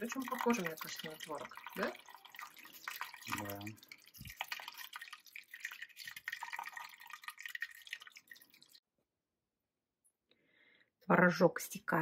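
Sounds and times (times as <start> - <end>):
liquid trickling through cloth: 0.0 - 8.8.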